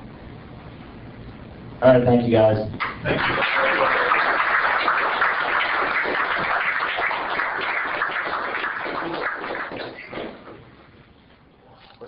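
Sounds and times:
audience applauding: 0:02.8 - 0:10.6.

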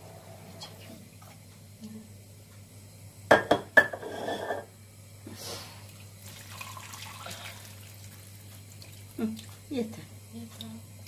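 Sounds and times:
water pouring and splashing into pot: 0:05.8 - 0:09.6.

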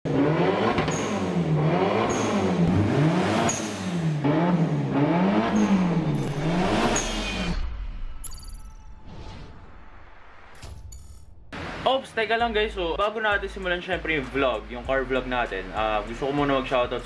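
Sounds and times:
car engine revving: 0:00.1 - 0:08.0.

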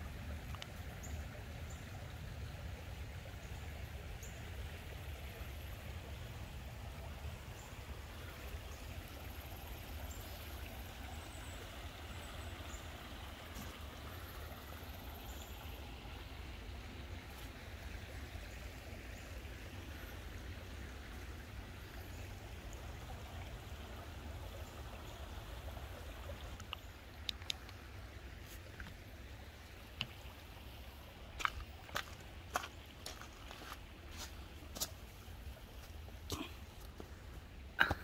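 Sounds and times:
creek flowing over stones: 0:00.0 - 0:38.0.

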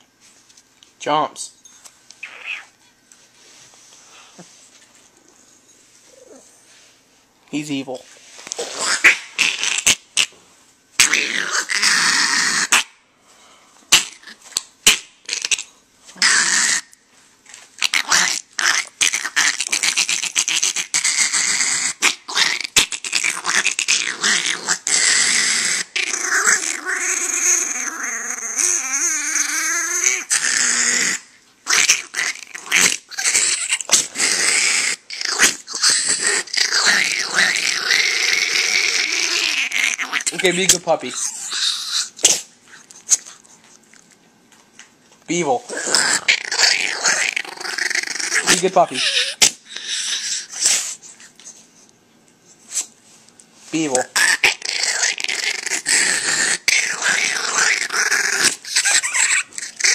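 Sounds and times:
small dog growling: 0:02.2 - 0:02.8, 0:06.1 - 0:06.6, 0:08.6 - 0:10.4, 0:11.0 - 0:12.9, 0:13.9 - 0:16.9, 0:17.8 - 0:44.2, 0:45.6 - 0:50.9, 0:53.9 - 0:59.9.

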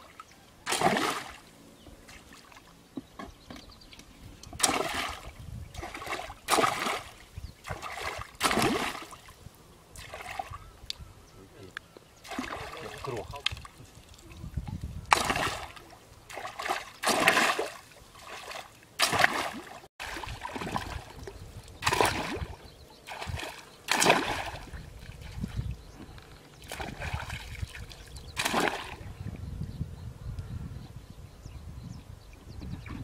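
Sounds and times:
pole splashing in muddy water: 0:00.0 - 0:01.4, 0:04.5 - 0:09.3, 0:10.0 - 0:10.6, 0:12.2 - 0:14.2, 0:15.1 - 0:25.6, 0:26.6 - 0:29.1
legs wading through water: 0:00.0 - 0:10.8, 0:12.2 - 0:29.1.

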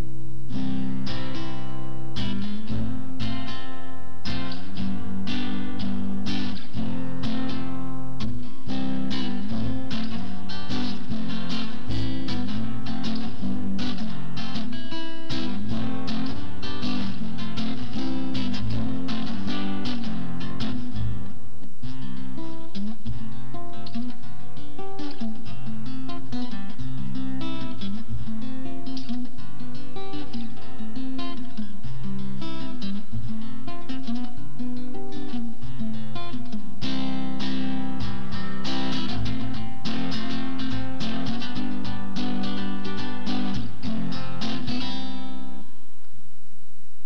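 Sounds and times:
nylon-string guitar chords: 0:00.0 - 0:46.6.

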